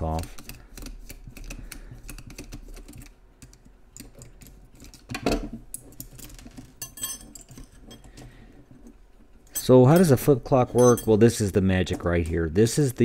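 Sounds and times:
light metal clinks: 9.5s - 11.2s.

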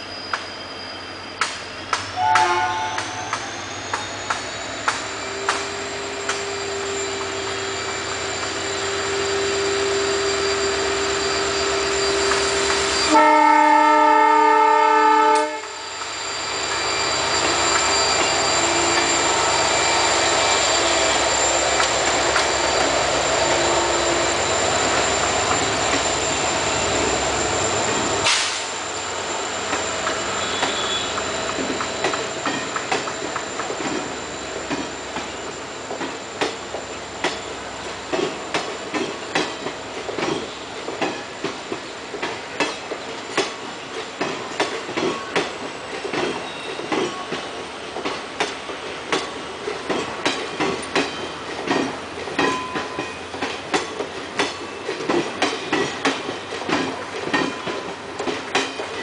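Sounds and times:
locomotive engine whine: 0.0s - 59.0s
train wheels rumbling on rails: 0.0s - 59.0s
train horn: 2.2s - 3.2s, 13.0s - 15.9s, 30.4s - 31.2s.

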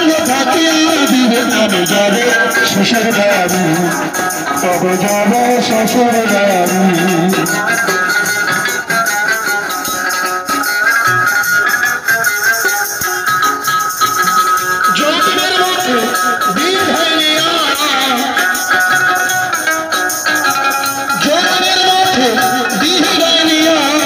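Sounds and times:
man singing through amplifier: 0.0s - 24.0s
plucked long-necked lute: 0.1s - 24.0s.

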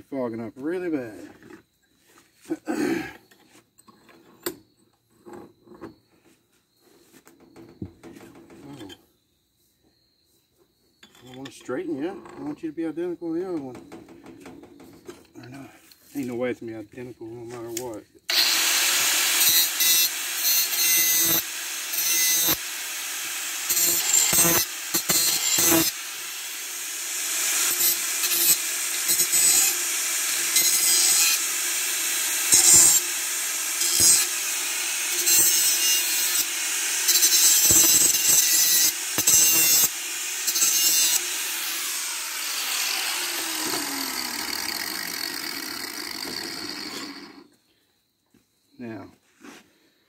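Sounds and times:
power grinder grinding metal pipe: 18.3s - 47.5s.

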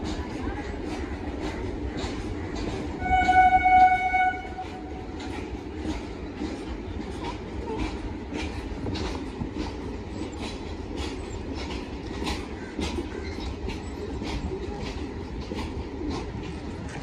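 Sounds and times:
train coaches rumbling: 0.0s - 17.0s
wheels clicking over rail joints: 0.0s - 17.0s
train horn: 3.0s - 5.1s.

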